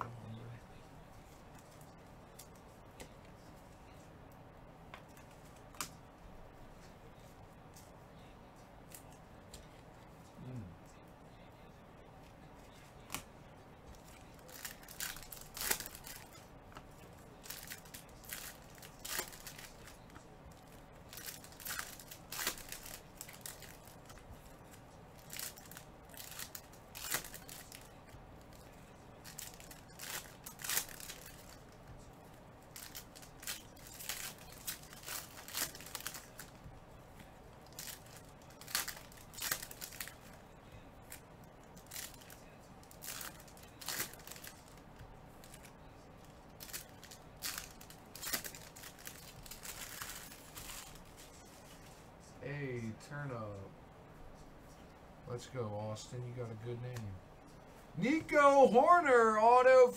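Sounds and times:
cards being handled: 12.2 - 45.7
foil wrappers tearing and crinkling: 14.1 - 16.4, 17.3 - 24.2, 25.1 - 31.7, 32.7 - 36.6, 37.6 - 40.3, 41.8 - 44.8, 46.6 - 51.3.

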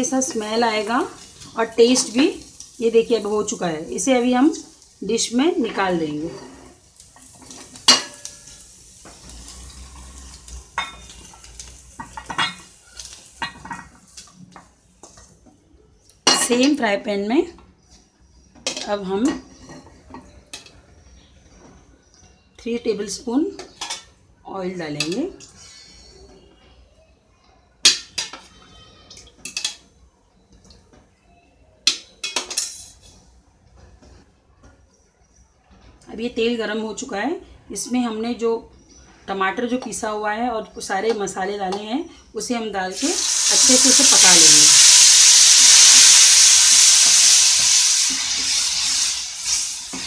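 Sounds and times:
spatula scraping frying pan: 5.6 - 15.4, 25.3 - 26.5
metal spoon clinking on cookware: 7.2 - 9.2, 10.2 - 15.3, 23.6 - 24.2, 27.8 - 29.9, 31.8 - 33.2.

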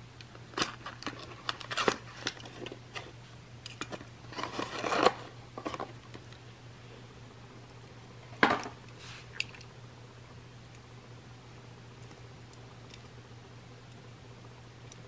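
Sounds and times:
plastic packaging crinkling: 0.6 - 3.0.

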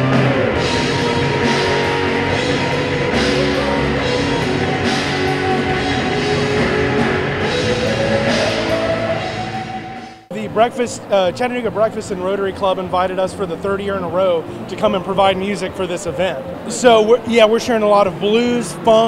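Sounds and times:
rock band playing: 0.0 - 10.4
held electric guitar notes: 0.0 - 11.1.

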